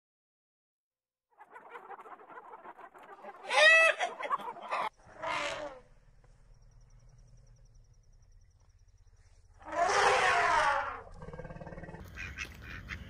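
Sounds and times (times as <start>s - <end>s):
hens and rooster clucking: 1.4s - 5.5s
loud squawk: 1.4s - 5.9s, 9.6s - 11.2s
faint low drone: 5.0s - 9.6s.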